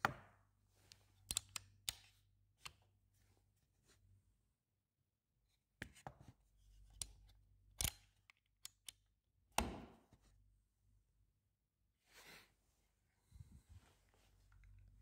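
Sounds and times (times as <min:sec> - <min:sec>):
plastic and metal clicks and snaps: 0:01.2 - 0:02.8, 0:06.9 - 0:09.7.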